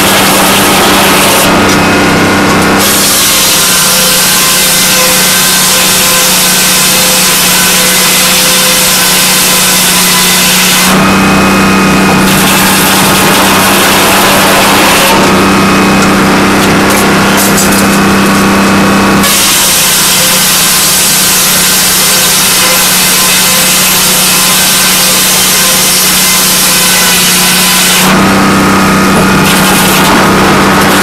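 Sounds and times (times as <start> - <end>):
saw blade cutting timber: 0.0 - 31.0
sawmill engine humming: 0.0 - 31.0.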